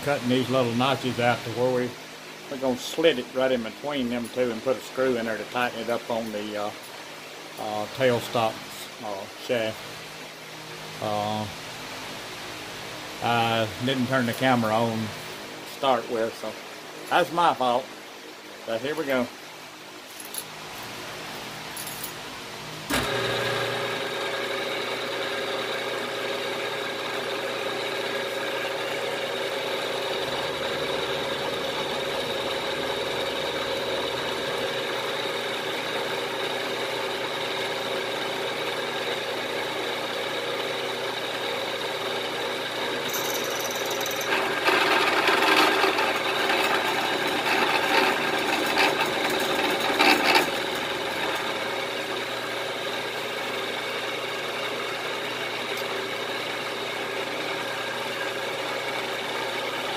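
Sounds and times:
end mill cutting aluminium: 22.9s - 59.8s
milling machine spindle whine: 22.9s - 59.9s.

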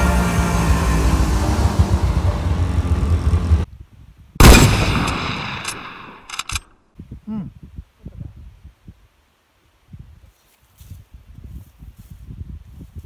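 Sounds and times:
snowmobile engine running: 0.0s - 3.7s
gunshot with echo: 4.4s - 6.3s.

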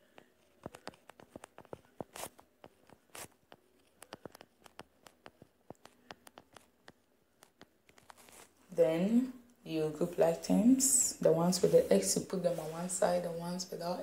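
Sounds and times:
stylus tapping on touchscreen: 0.1s - 7.8s.

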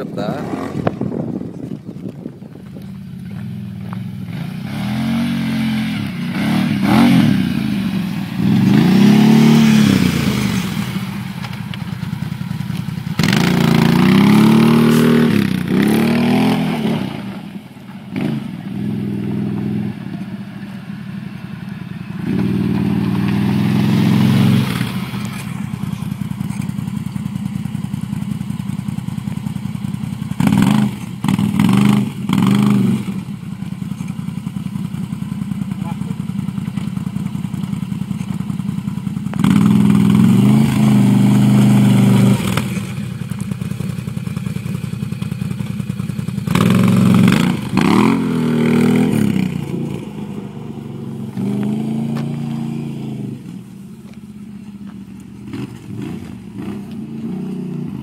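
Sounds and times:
quad engine revving: 0.0s - 1.4s, 3.4s - 11.3s, 13.1s - 20.3s, 21.8s - 27.2s, 30.3s - 33.3s, 39.3s - 43.4s, 46.3s - 53.6s, 55.4s - 58.0s.

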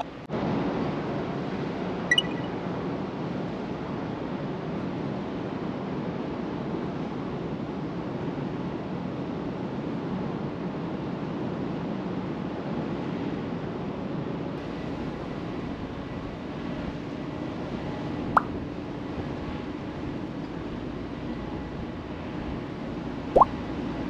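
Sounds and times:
churning water: 14.6s - 24.0s
ferry engines rumbling: 14.6s - 24.0s.

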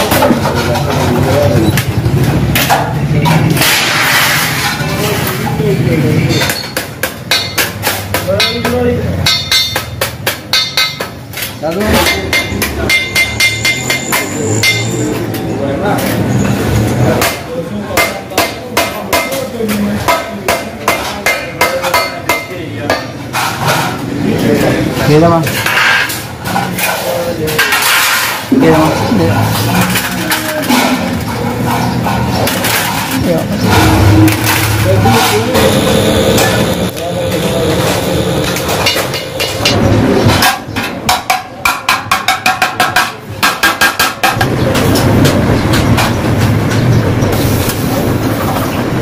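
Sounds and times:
hammer tapping on metal tray: 6.3s - 14.9s, 17.2s - 23.9s, 38.4s - 46.2s
steady rushing noise: 44.2s - 49.0s.

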